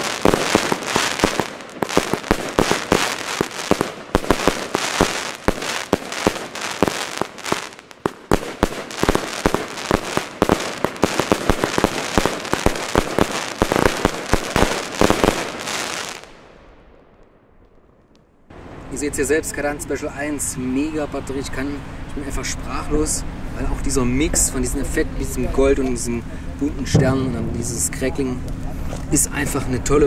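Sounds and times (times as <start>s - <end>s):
firework shots banging: 0.0s - 16.5s, 26.8s - 29.2s
firework crackle: 0.0s - 16.6s.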